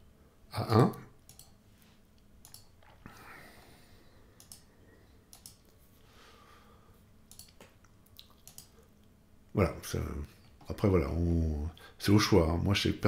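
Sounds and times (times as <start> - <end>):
computer mouse clicks: 1.2 - 1.6, 2.2 - 3.0, 4.4 - 4.7, 5.3 - 5.8, 7.3 - 9.1.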